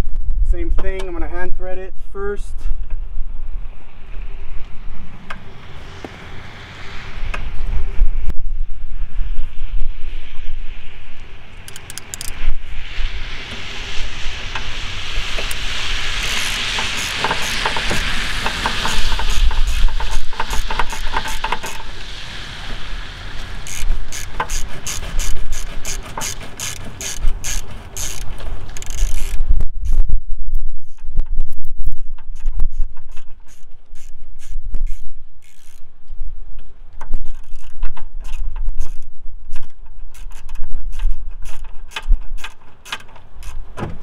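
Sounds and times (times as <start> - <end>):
socket ratchet clicking: 11.6 - 12.4, 23.7 - 29.4, 33.5 - 35.8.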